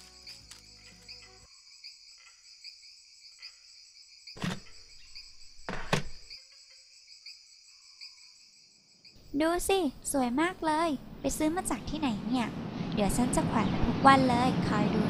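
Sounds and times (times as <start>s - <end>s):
crickets chirping: 0.0s - 11.7s.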